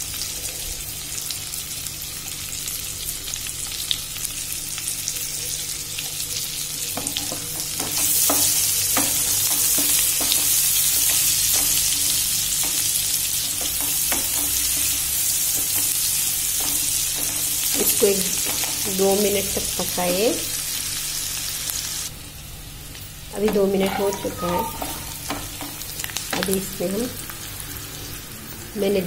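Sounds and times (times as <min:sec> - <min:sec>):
onions sizzling in hot oil: 0:00.0 - 0:29.0
wooden spoon knocking on pan: 0:07.0 - 0:18.9.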